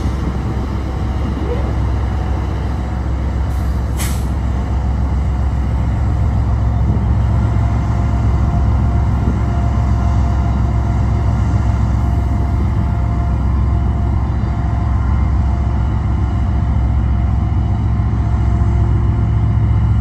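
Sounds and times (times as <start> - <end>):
freight train rumbling: 0.0 - 20.0
short hiss: 3.6 - 4.4.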